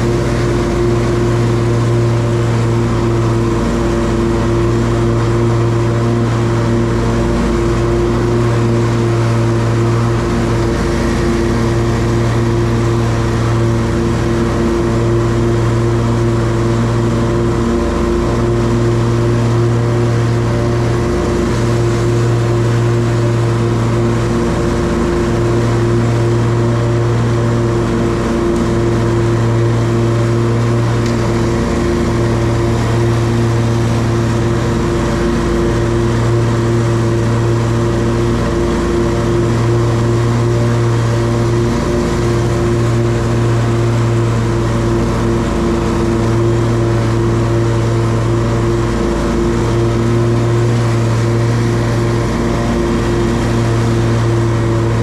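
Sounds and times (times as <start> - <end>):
lawn mower engine drone: 0.0 - 55.0.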